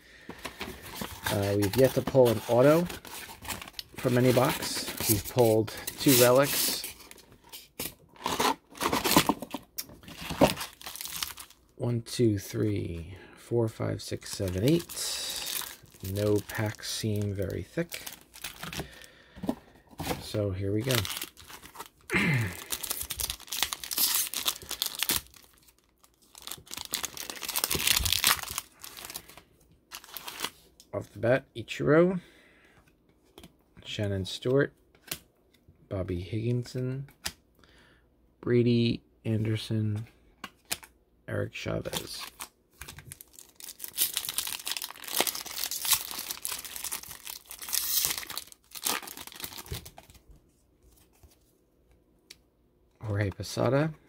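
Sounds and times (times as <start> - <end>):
wrapper tearing and crinkling: 0.5 - 7.2, 8.2 - 11.6, 14.2 - 19.1, 20.8 - 30.5, 41.9 - 50.2.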